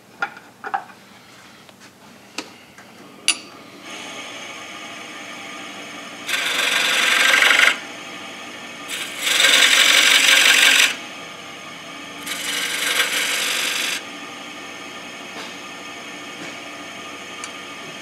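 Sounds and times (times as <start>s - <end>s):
lathe running: 3.7s - 18.0s
tool scraping wood on lathe: 6.3s - 7.8s, 8.9s - 11.0s, 12.2s - 14.0s.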